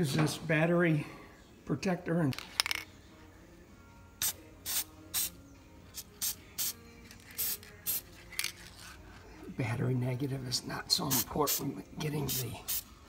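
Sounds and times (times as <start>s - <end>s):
aerosol spray hissing: 4.2s - 5.4s, 6.0s - 8.1s, 12.2s - 13.0s.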